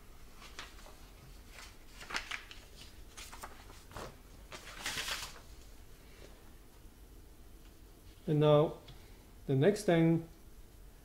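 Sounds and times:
paper sliding rustle: 0.3s - 6.3s
paper rustling and scraping: 0.4s - 5.7s.

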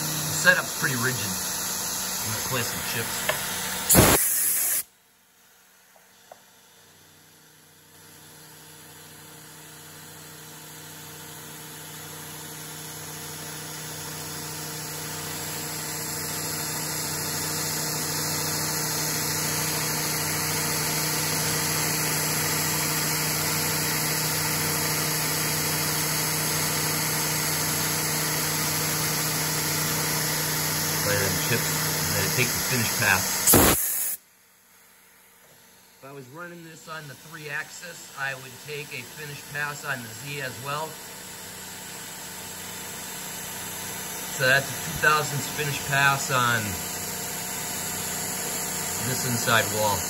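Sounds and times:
milling machine cutting metal: 0.0s - 4.5s, 26.6s - 34.1s, 44.2s - 50.0s
hiss of coolant spray: 0.4s - 4.9s, 31.1s - 34.2s.

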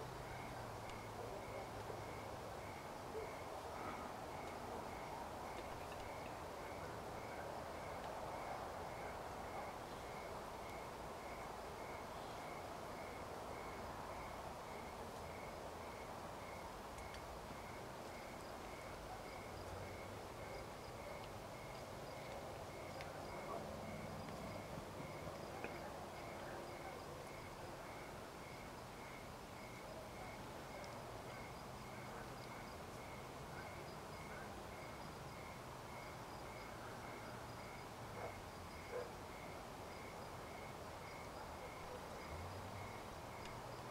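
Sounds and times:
low steady hiss: 0.0s - 43.9s
insect chirping: 0.2s - 43.9s.

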